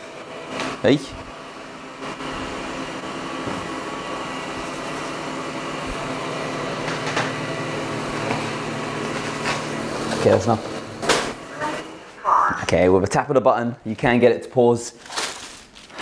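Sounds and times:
robot vacuum humming: 0:00.0 - 0:12.4.

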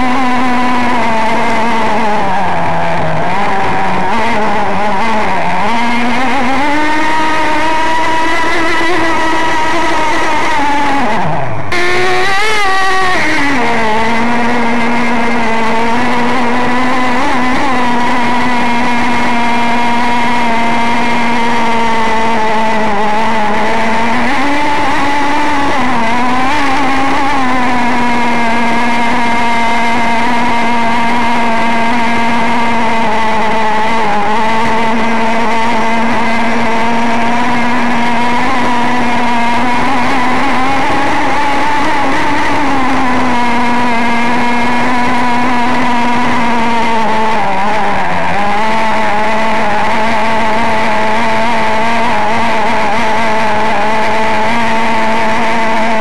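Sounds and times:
model boat engine screaming: 0:00.0 - 0:28.3.

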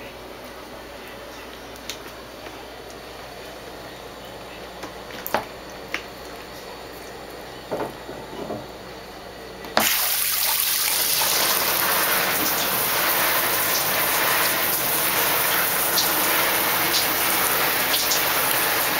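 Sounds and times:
shower spray hissing: 0:09.8 - 0:18.9.

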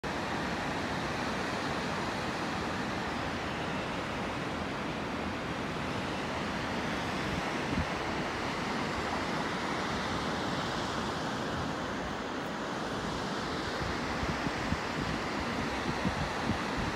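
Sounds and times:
rushing water: 0:00.0 - 0:16.9
wind buffeting microphone: 0:13.8 - 0:16.9.

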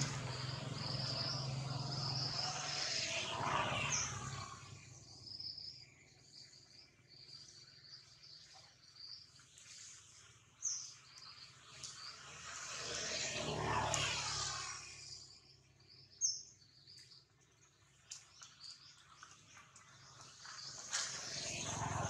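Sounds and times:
broad rushing noise: 0:00.0 - 0:04.9
high insect drone: 0:00.0 - 0:05.7, 0:11.5 - 0:15.6
small birds chirping: 0:00.0 - 0:22.0.

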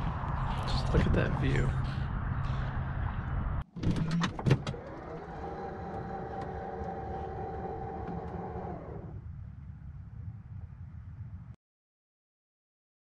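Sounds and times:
low outdoor rumble: 0:00.0 - 0:03.7, 0:04.7 - 0:11.6
faint motorised hum with whine: 0:04.1 - 0:09.7.

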